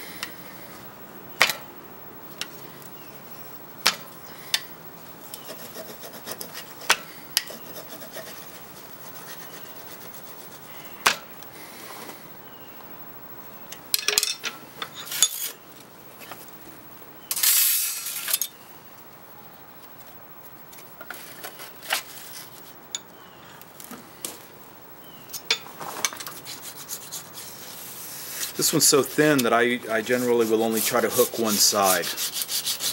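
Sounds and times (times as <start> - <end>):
burnisher rubbing steel edge: 26.2 - 32.9.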